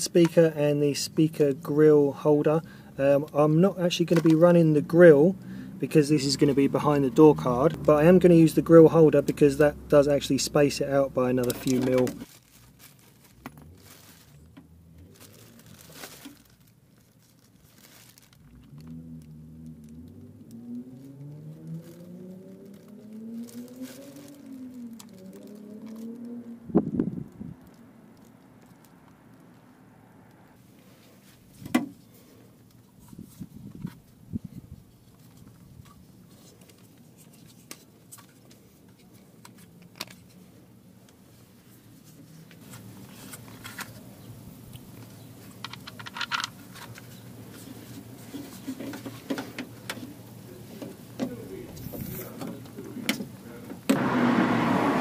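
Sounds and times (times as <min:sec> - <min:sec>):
speaker parts handled clicking: 0:11.4 - 0:12.3, 0:44.7 - 0:47.1
plastic bag crinkling: 0:11.4 - 0:20.6, 0:21.6 - 0:26.5, 0:27.1 - 0:29.4
small clicks and rustles: 0:11.4 - 0:26.5, 0:27.2 - 0:29.7, 0:30.3 - 0:44.1, 0:44.7 - 0:53.3.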